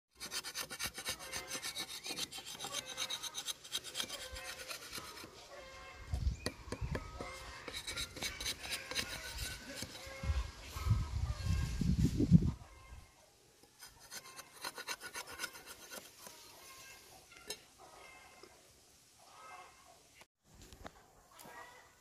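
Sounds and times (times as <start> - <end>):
metal blade scraping wood: 0.1 - 5.4, 7.0 - 10.2, 13.7 - 16.5.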